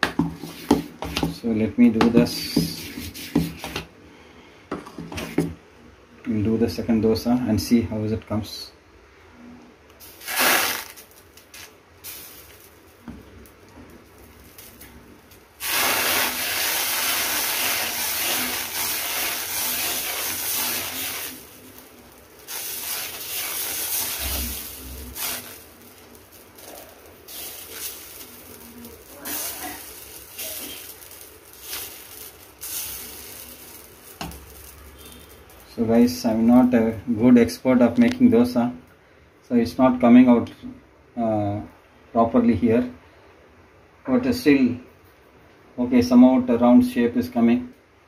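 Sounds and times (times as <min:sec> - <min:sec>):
batter sizzling on hot griddle: 0:00.0 - 0:01.4, 0:02.0 - 0:03.9, 0:10.0 - 0:37.1.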